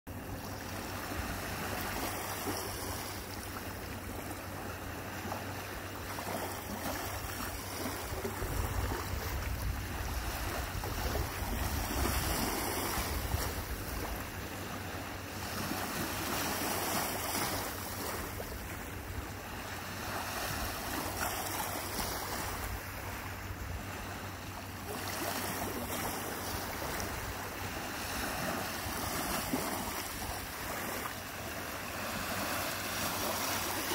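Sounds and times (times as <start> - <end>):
waves washing onto shore: 0.1 - 33.9
wind rumbling on microphone: 6.6 - 16.2.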